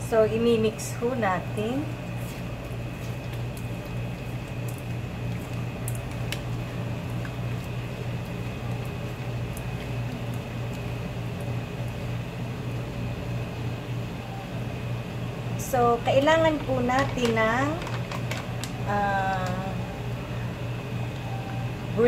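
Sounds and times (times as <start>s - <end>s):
low machine hum: 0.0s - 22.0s
wet squishing: 2.2s - 12.3s.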